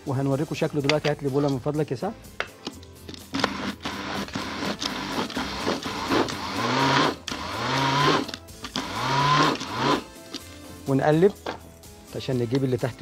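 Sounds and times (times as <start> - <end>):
food processor whirring: 3.3 - 10.1.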